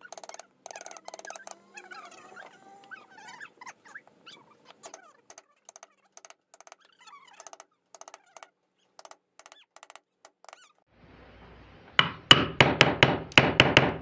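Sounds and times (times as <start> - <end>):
carving gouge clicks and snaps: 0.0 - 1.6, 4.7 - 10.6
animal whining: 0.0 - 6.2, 6.8 - 7.6.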